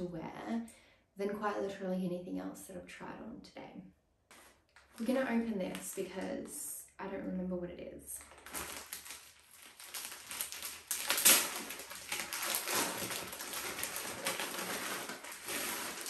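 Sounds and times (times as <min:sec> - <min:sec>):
plastic bag crinkling: 0:04.3 - 0:06.6, 0:08.1 - 0:16.0.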